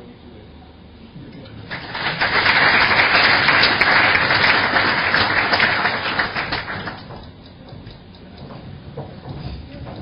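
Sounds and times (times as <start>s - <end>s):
audience applause: 1.7s - 7.2s.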